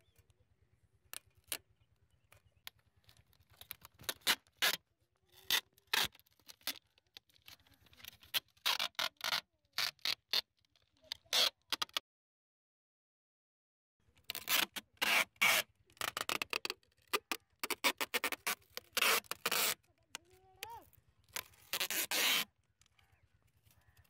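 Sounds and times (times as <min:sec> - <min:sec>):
packing tape pulled off roll: 0:03.0 - 0:12.0, 0:14.2 - 0:20.4, 0:21.2 - 0:22.6.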